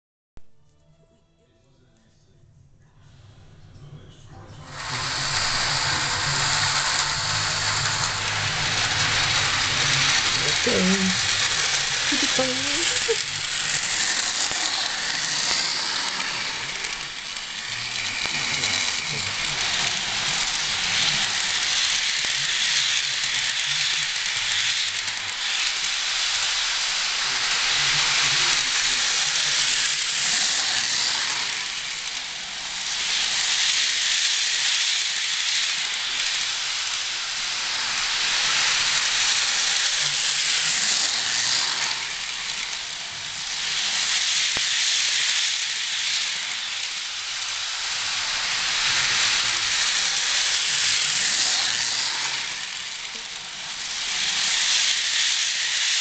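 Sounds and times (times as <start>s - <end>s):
model train wheels rattling: 4.7s - 56.0s.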